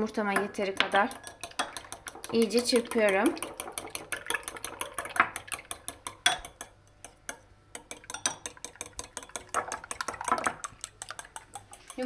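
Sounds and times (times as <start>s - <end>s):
utensil clicking against glass bowl: 0.8s - 12.0s.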